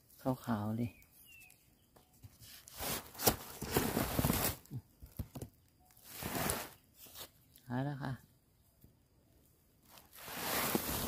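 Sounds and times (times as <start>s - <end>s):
dry bamboo leaves rustling: 2.3s - 7.4s, 9.8s - 11.0s.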